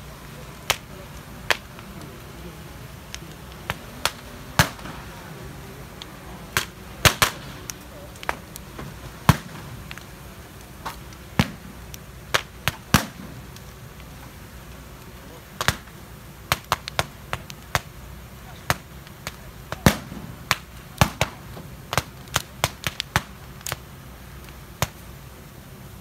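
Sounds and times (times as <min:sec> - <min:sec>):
murmur of large crowd: 0:00.0 - 0:16.3
firecrackers banging: 0:00.0 - 0:25.1.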